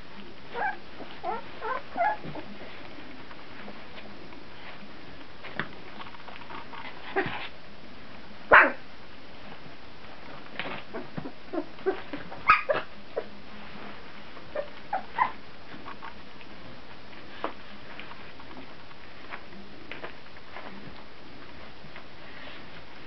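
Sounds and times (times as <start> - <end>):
puppies yipping and barking: 0.5 - 2.5, 10.9 - 12.9, 14.5 - 15.4.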